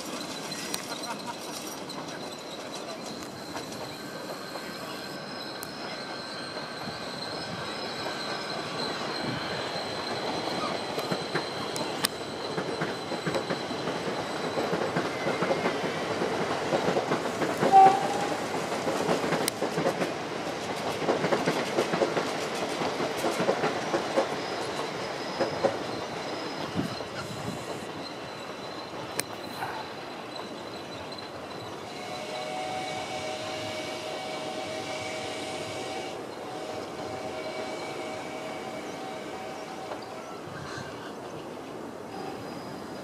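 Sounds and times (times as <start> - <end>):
small train wheels clickety-clack: 0.0 - 43.0
train whistle toot: 17.6 - 18.5, 31.8 - 40.6, 42.1 - 42.9.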